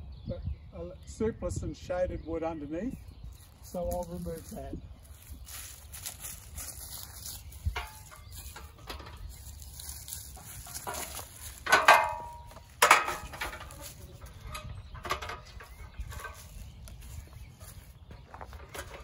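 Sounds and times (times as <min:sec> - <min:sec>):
metal stepladder clanking: 0:07.7 - 0:16.7, 0:18.2 - 0:19.0.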